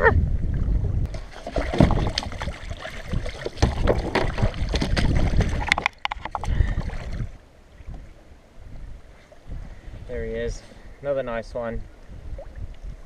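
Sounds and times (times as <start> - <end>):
water splashing and sloshing: 0.0 - 8.3, 11.9 - 13.0.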